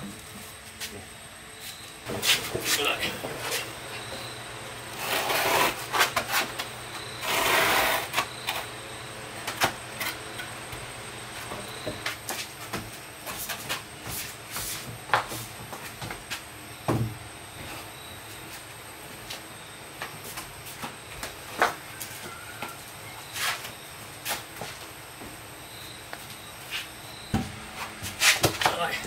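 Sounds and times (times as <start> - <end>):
wood scraping on concrete: 4.9 - 8.7.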